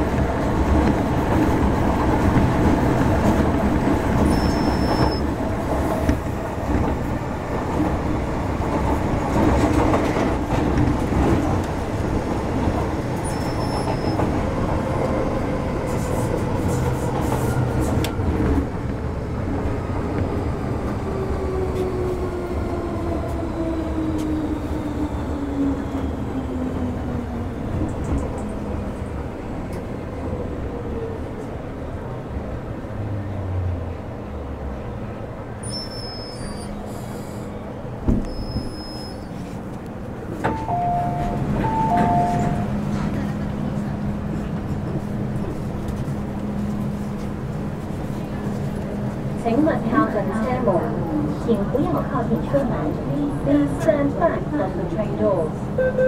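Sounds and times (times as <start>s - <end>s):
train wheels rumbling: 0.0s - 55.8s.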